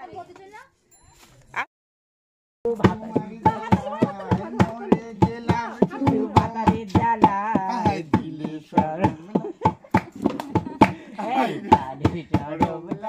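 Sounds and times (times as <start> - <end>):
barrel drum beating rhythm: 2.7 - 13.0
person singing folk song: 2.7 - 13.0.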